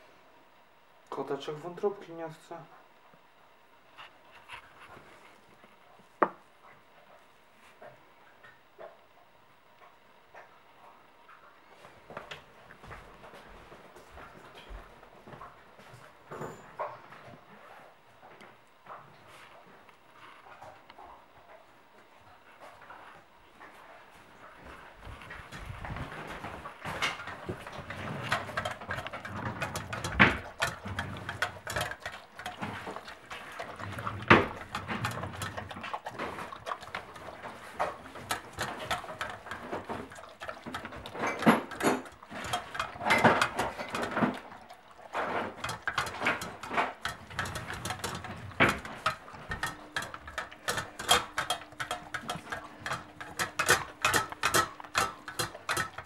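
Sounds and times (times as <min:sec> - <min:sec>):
pet chewing food: 0:24.7 - 0:56.0.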